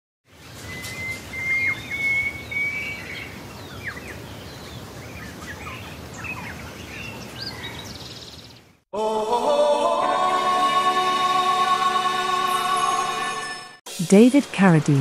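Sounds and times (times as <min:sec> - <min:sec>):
birds chirping and calling: 0:00.4 - 0:08.8.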